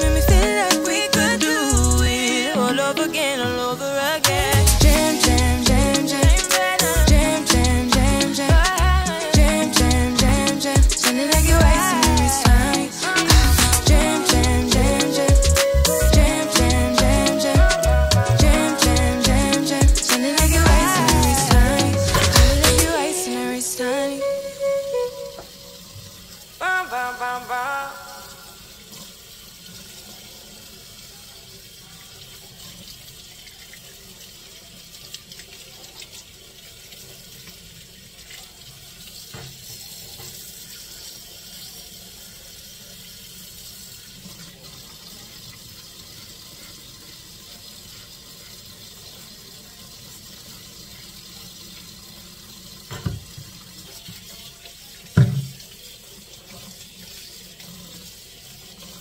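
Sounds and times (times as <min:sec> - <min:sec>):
tap water running into sink: 0:24.9 - 0:26.6, 0:28.6 - 0:59.0.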